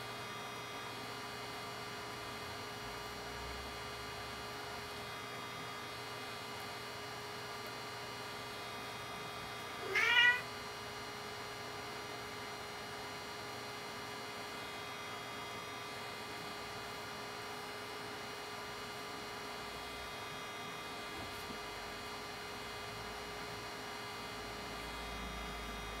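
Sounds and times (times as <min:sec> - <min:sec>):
steady electrical hum: 0:00.0 - 0:26.0
kitten meowing: 0:09.8 - 0:10.4.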